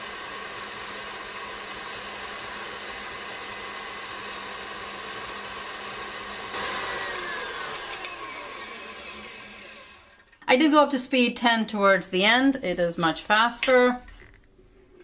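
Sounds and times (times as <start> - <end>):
stand mixer whipping cream: 0.0 - 10.3.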